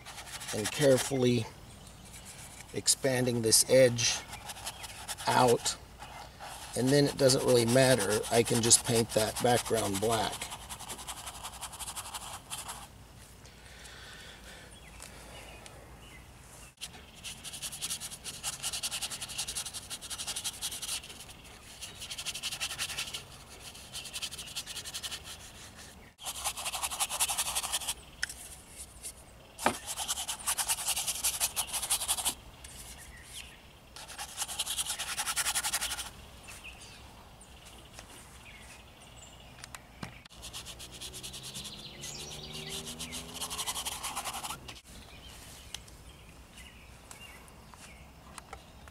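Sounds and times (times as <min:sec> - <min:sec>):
paintbrush scrubbing on canvas: 0:00.0 - 0:01.2, 0:02.0 - 0:12.9, 0:16.8 - 0:28.9, 0:29.6 - 0:33.4, 0:34.0 - 0:36.1, 0:40.3 - 0:44.6.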